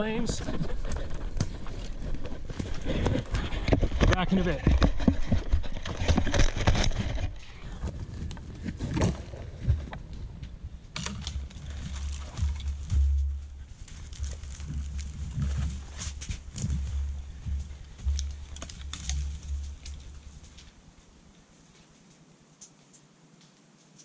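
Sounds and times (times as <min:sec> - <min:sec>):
footsteps on dry needles and twigs: 0:00.0 - 0:09.9, 0:11.0 - 0:22.9
low rumble: 0:09.2 - 0:20.8
camera being handled: 0:18.0 - 0:20.1.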